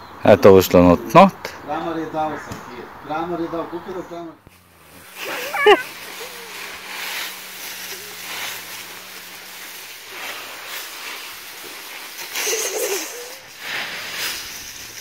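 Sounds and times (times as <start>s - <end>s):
steady hiss: 4.4s - 15.0s
dry leaves rustling: 4.5s - 15.0s.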